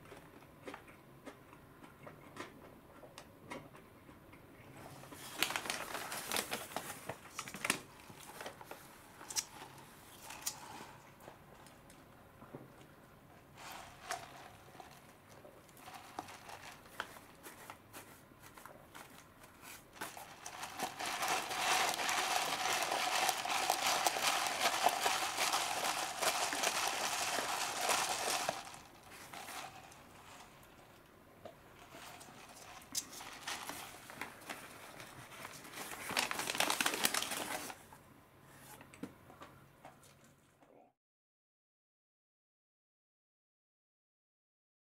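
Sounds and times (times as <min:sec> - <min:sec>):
paper wrapper crinkling: 0:05.1 - 0:09.6, 0:13.6 - 0:30.8, 0:31.8 - 0:37.8.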